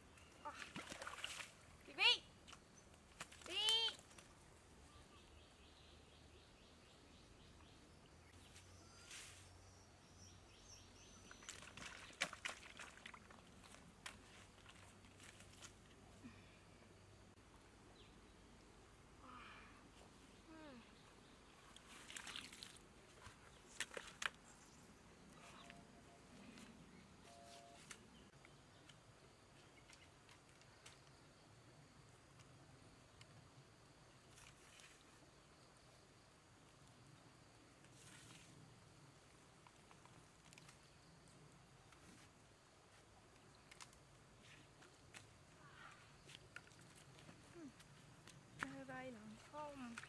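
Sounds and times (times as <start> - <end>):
water splashing: 0.5 - 1.7, 11.4 - 13.8, 21.8 - 22.9.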